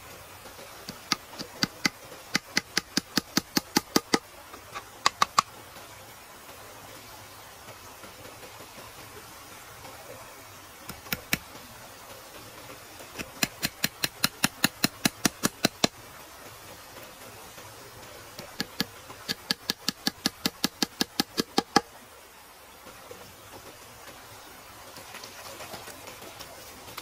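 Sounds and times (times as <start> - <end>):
steady low hiss: 0.0 - 27.0.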